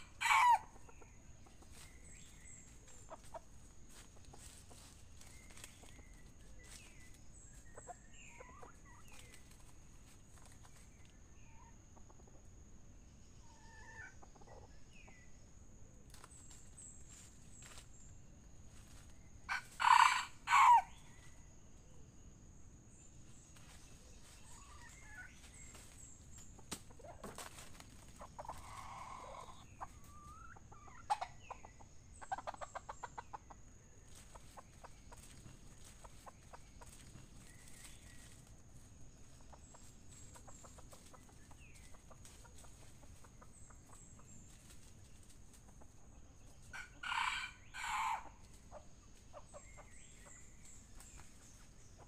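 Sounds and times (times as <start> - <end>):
rooster crowing: 0.0 - 0.8, 19.5 - 21.0, 46.8 - 48.4
faint high-pitched whine: 0.0 - 52.0
rooster clucking: 26.6 - 33.6.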